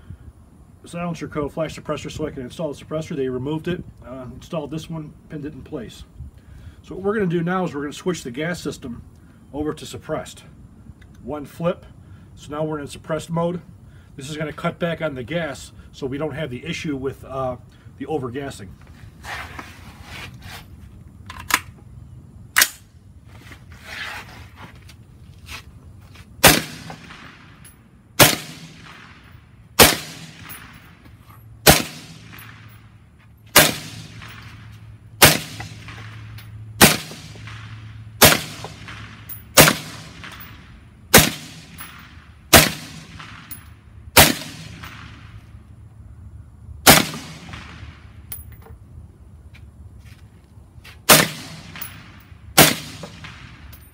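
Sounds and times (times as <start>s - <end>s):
suppressed rifle shots: 26.4s - 27.6s, 28.2s - 30.9s, 31.6s - 32.8s, 33.6s - 34.6s, 35.2s - 43.6s, 44.2s - 45.4s, 46.8s - 48.0s, 51.1s - 53.6s.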